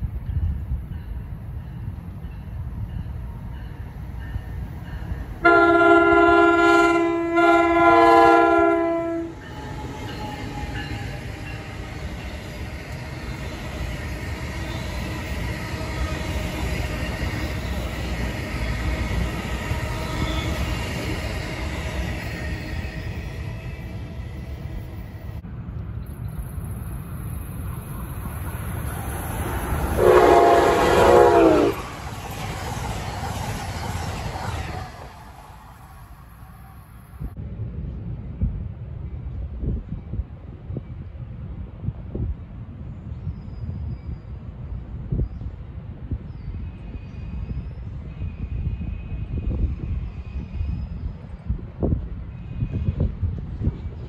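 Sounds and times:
train coaches rumbling past: 0.0 - 54.0
train horn: 5.4 - 11.7, 29.9 - 32.0
passing train horn dropping in pitch: 5.4 - 11.9, 29.9 - 32.0.

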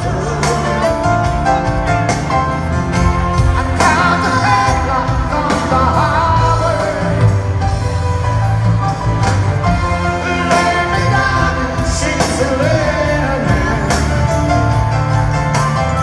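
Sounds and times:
lead singer: 0.0 - 2.2, 3.0 - 16.0
bass line: 0.0 - 16.0
live pop-rock band: 0.0 - 16.0.

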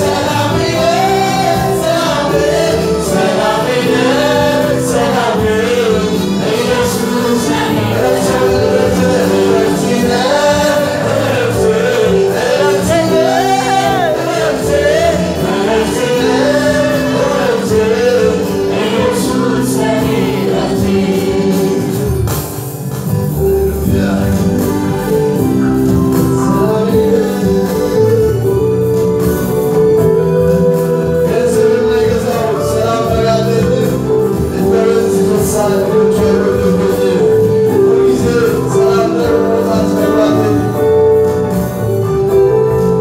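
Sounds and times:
man singing into a microphone: 0.0 - 22.2, 23.7 - 29.1, 29.8 - 41.4
choir singing: 0.0 - 22.4, 30.0 - 41.2
keyboard accompaniment: 0.0 - 43.0.

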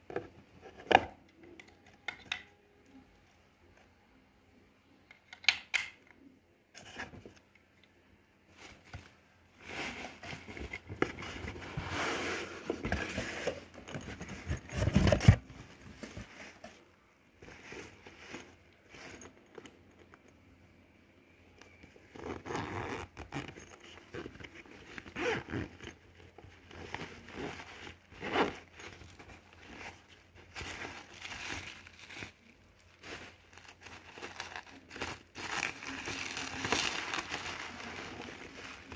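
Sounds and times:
items scraping and knocking: 8.5 - 16.8, 23.5 - 38.9
plastic packaging crinkling: 28.6 - 38.9.

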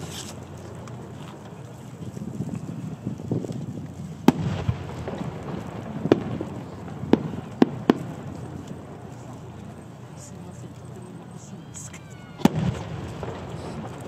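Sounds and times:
low rumble: 0.0 - 14.0
firework shells bursting: 4.2 - 10.4, 11.3 - 14.0.

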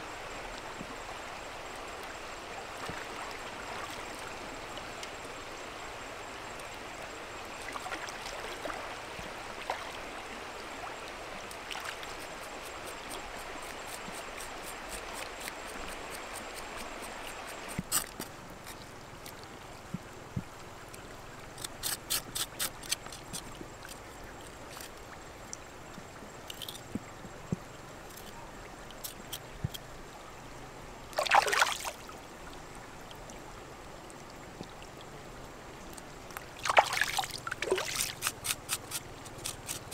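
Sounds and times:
river water flowing: 0.0 - 39.9
knife scraping and cutting skin: 21.6 - 23.4, 38.0 - 39.9.

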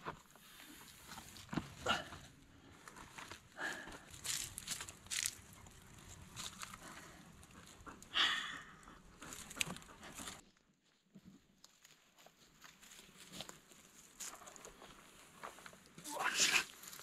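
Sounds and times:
dry leaves crackling: 4.2 - 5.4.

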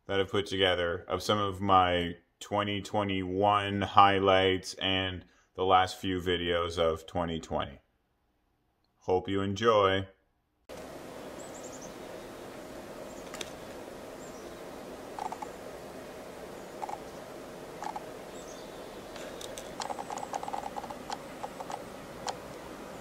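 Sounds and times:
steady hiss: 10.7 - 23.0
woodpecker pecking on tree trunk: 15.1 - 15.6, 16.8 - 17.2, 17.8 - 18.1, 19.1 - 22.5.

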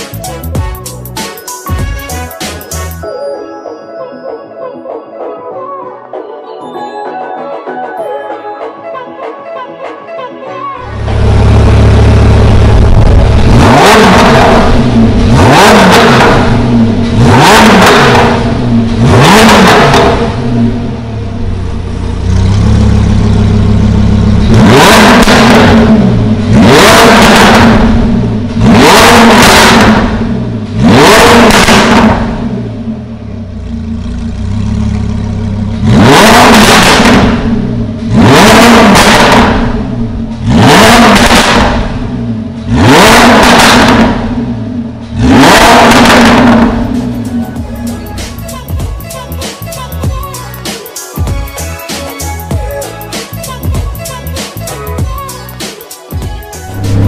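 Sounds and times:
car engine revving from idle: 10.9 - 47.4.

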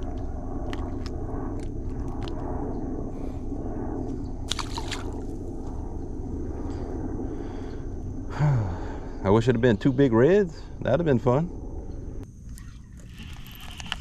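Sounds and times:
steady low rumble: 0.0 - 12.5
water sloshing and squishing: 4.5 - 5.2.

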